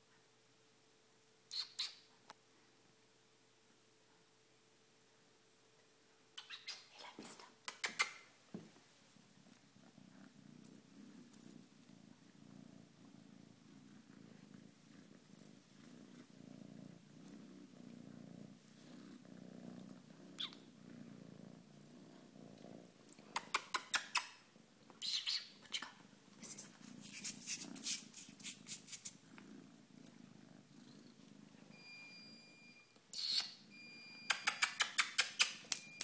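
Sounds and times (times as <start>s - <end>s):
kitten purring: 8.9s - 36.0s.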